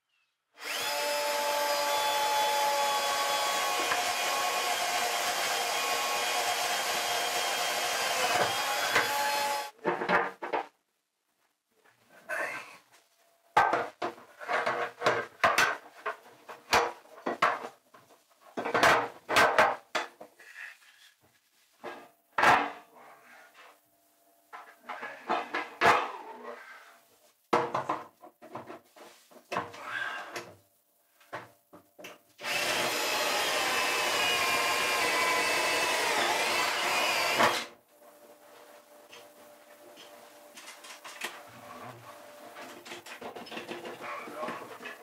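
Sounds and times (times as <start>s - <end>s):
electric power tool motor whine: 0.6s - 9.7s, 32.4s - 37.7s.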